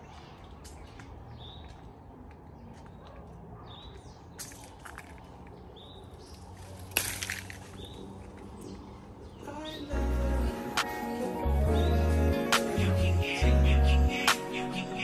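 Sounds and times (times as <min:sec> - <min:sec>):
bird chirping: 0:00.0 - 0:15.0
leaves rustling and stem snapping: 0:06.3 - 0:08.5.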